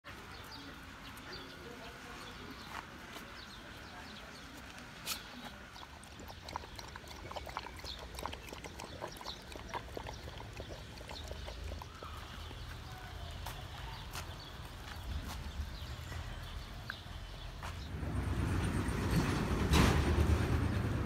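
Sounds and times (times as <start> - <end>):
dog lapping water: 5.4 - 13.1.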